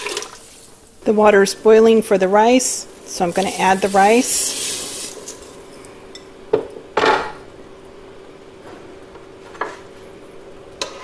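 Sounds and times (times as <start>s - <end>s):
water boiling in pot: 0.0s - 1.8s, 2.4s - 5.7s.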